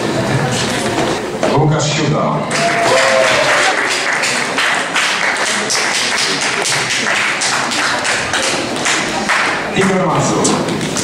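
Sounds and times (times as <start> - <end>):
audience clapping in rhythm: 2.5 - 11.0.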